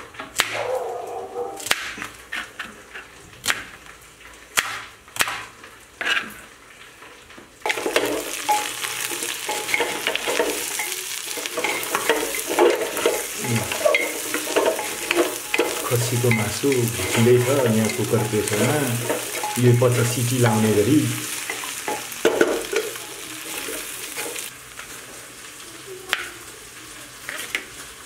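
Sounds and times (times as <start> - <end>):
meat sizzling: 0.0 - 28.0
wooden spatula scraping pot: 6.0 - 6.6, 7.6 - 24.5.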